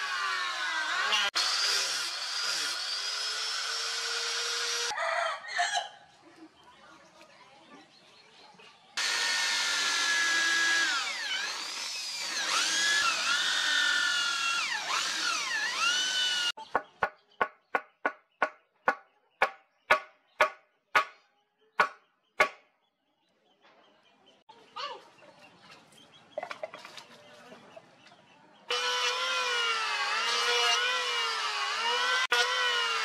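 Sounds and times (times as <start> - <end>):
electric drill boring into wood: 0.0 - 4.9, 9.0 - 16.6, 28.7 - 33.0.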